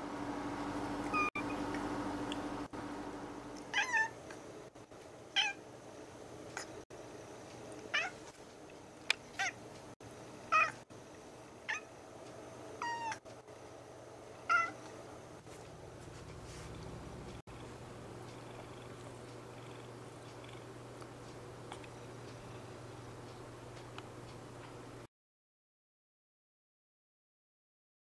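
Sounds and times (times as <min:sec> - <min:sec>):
cat meowing: 0:03.7 - 0:04.2, 0:05.4 - 0:05.6, 0:08.0 - 0:08.2, 0:10.5 - 0:10.8, 0:12.8 - 0:13.2, 0:14.5 - 0:14.8.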